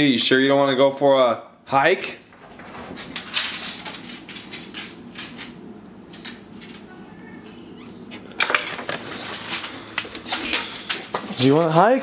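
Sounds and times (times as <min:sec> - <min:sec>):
dog's claws clicking on tile: 0:02.6 - 0:06.9, 0:09.1 - 0:11.7.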